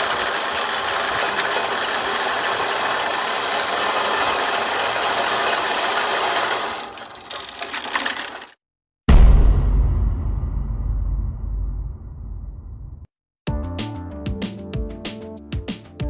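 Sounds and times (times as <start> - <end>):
chain hoist mechanical noise: 0.0 - 8.6.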